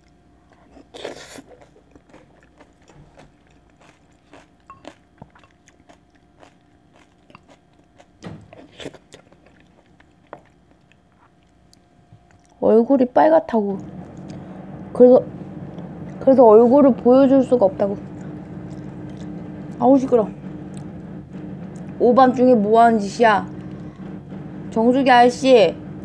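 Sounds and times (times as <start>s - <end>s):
chewing and mouth clicks: 0.0s - 12.6s, 13.8s - 14.9s, 18.0s - 19.8s, 20.5s - 21.0s.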